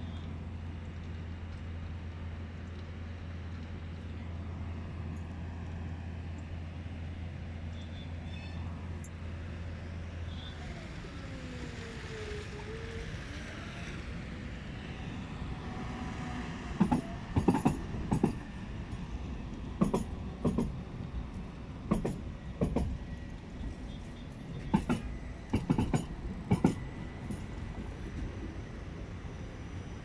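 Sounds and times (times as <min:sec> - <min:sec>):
tram rumbling: 0:00.0 - 0:30.0
wheels clacking over rail gaps: 0:16.8 - 0:19.0, 0:19.6 - 0:28.4.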